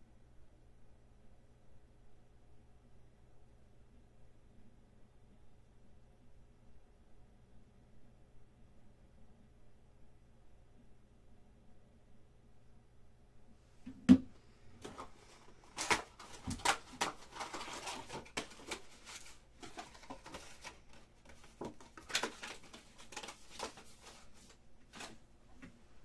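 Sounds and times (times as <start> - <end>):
cardboard packs rustling and tapping: 14.1 - 25.7.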